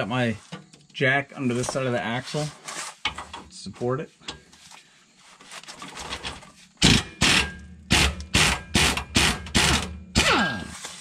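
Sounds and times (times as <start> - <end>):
air impact wrench hammering: 6.8 - 10.7
impact wrench whining as it spins down: 6.8 - 11.0.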